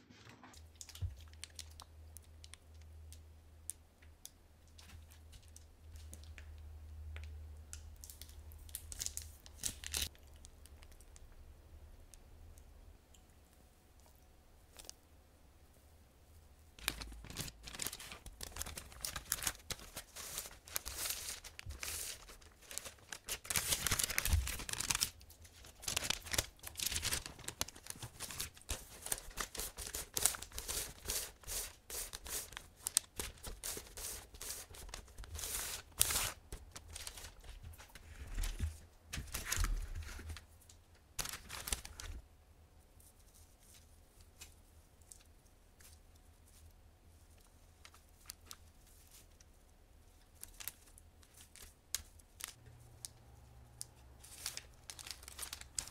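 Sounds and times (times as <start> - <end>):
baking paper rustling and crinkling: 16.8 - 40.5, 41.2 - 42.2, 50.2 - 52.6, 54.2 - 55.9.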